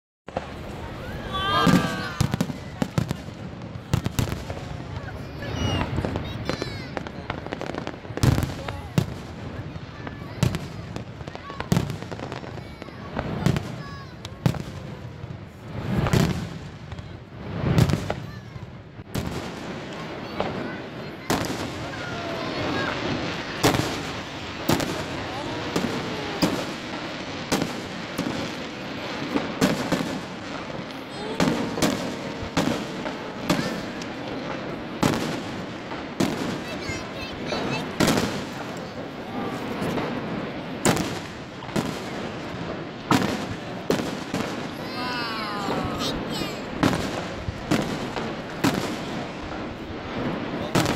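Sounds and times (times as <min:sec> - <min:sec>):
fireworks background rumble: 0:00.3 - 0:50.9
fireworks bangs: 0:00.3 - 0:50.9
firework shells bursting: 0:21.3 - 0:44.8.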